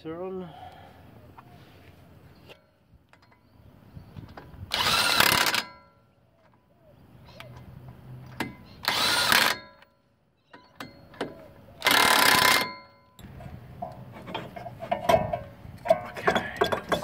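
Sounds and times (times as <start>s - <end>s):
impact wrench hammering nuts: 10.8s - 12.9s.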